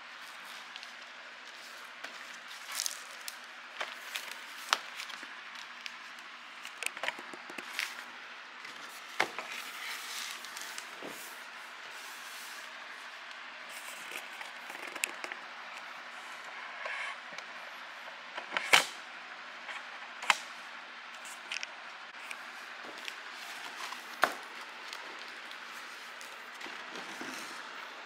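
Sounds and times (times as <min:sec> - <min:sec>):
cardboard and paper crinkling: 0:00.2 - 0:15.9, 0:21.2 - 0:28.0.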